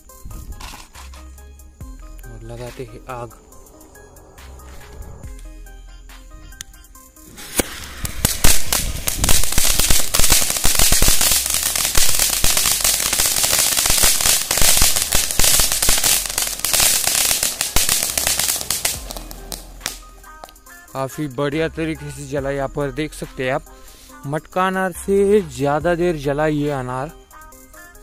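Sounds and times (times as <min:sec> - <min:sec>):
fountain firework hissing and crackling: 0:07.2 - 0:20.6.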